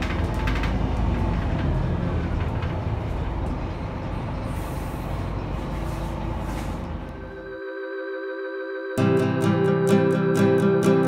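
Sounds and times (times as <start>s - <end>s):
bus diesel engine rumble: 0.0s - 7.4s.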